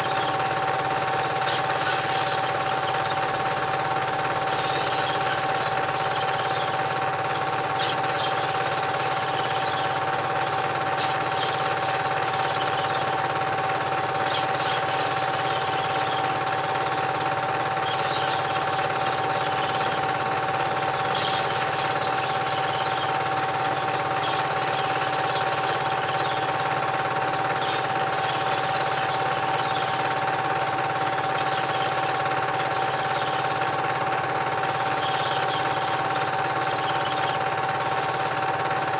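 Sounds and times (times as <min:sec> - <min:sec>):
film projector whirring: 0:00.0 - 0:38.9.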